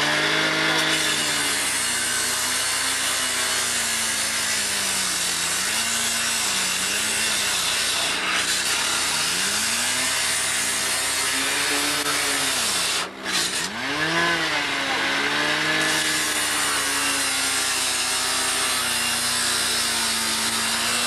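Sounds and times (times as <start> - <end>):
rescue saw grinding metal: 0.0 - 21.0.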